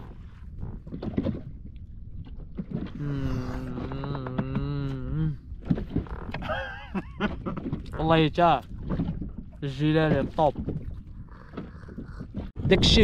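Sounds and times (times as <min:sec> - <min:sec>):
man humming a long tone: 0:03.0 - 0:05.4.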